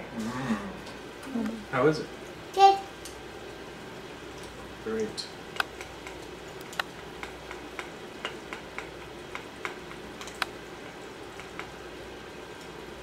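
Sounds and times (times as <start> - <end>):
low room hum: 0.0 - 13.0
chopsticks clicking on ceramic bowls: 5.6 - 10.5.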